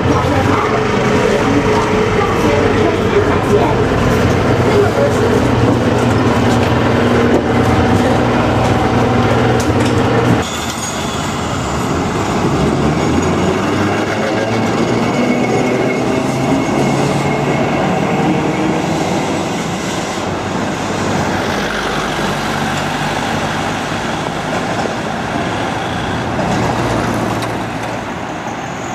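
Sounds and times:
hum inside streetcar: 0.0 - 28.9
road traffic: 0.0 - 28.9
tram running on rails: 0.0 - 28.9.

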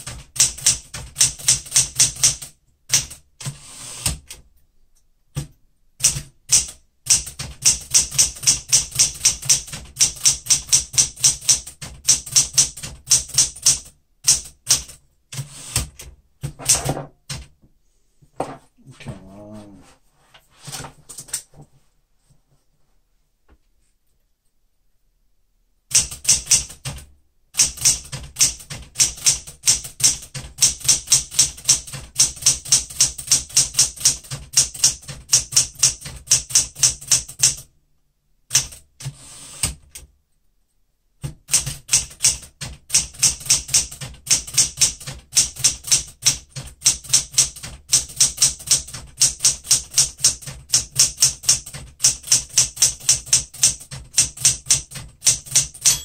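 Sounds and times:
manual typewriter typing: 0.0 - 4.4, 5.3 - 17.5, 25.9 - 37.7, 38.5 - 40.1, 41.2 - 56.0.

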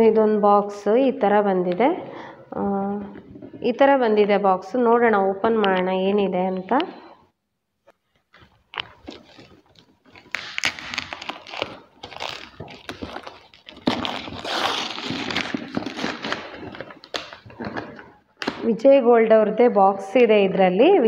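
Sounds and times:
paper wrapping tearing and crinkling: 8.3 - 18.6.

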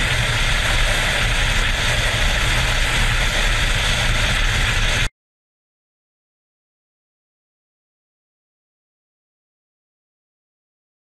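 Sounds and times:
low wind buffeting: 0.0 - 5.1
road noise: 0.0 - 5.1
wind rush: 0.0 - 5.1.

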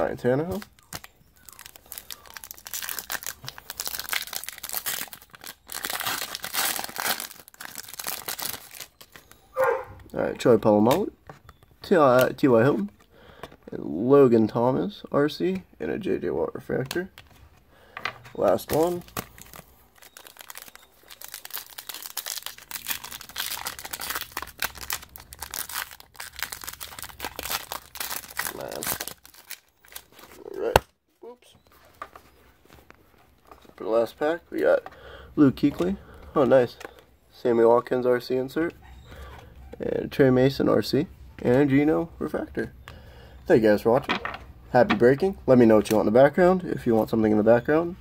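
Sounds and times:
foil wrapper tearing and crinkling: 0.5 - 9.3, 18.5 - 30.4.

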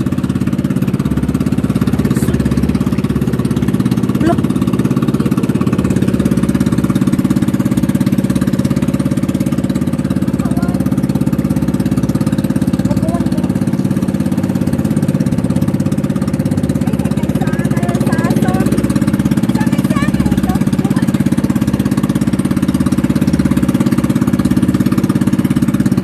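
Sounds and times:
boat engine droning: 0.0 - 26.0.

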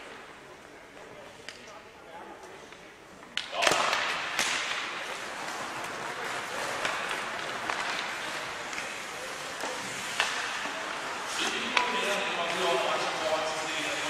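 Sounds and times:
hockey sticks cracking together: 2.7 - 12.6
sticks clicking on puck: 2.7 - 13.1
skate blades scraping ice: 3.6 - 14.0.

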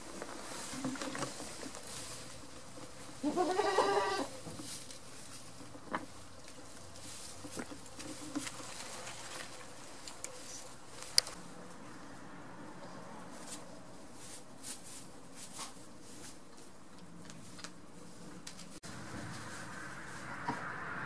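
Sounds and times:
goat bleating: 3.2 - 4.3.

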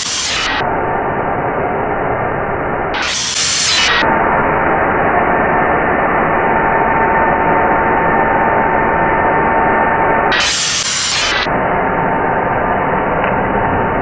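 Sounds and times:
electric air blower whine: 0.0 - 0.8, 2.9 - 13.0.

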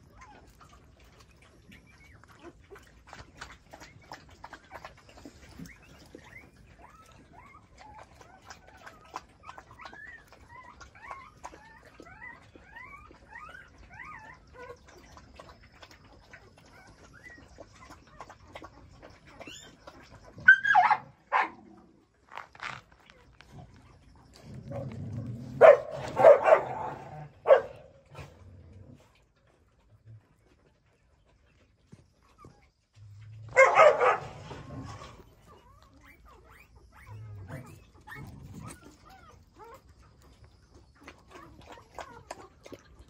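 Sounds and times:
puppy yelping: 3.8 - 15.2, 19.3 - 21.6, 25.5 - 28.3, 33.5 - 40.3
faint high chirping squeaks: 34.9 - 39.9.

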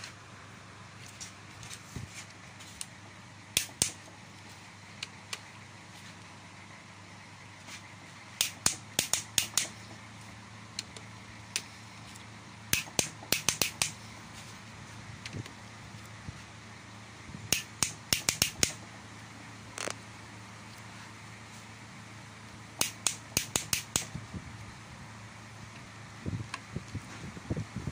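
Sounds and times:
socket wrench clicking: 3.6 - 4.1, 8.4 - 9.8, 12.7 - 14.0, 17.5 - 18.8, 22.8 - 24.1.

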